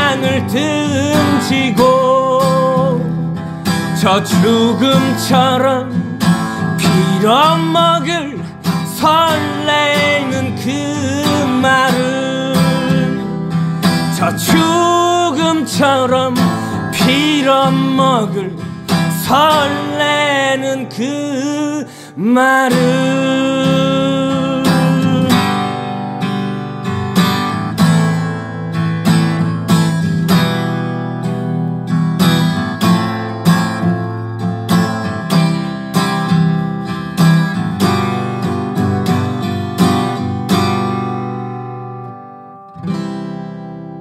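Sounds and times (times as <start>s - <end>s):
person singing: 0.0s - 25.8s
acoustic guitar strumming: 0.0s - 44.0s.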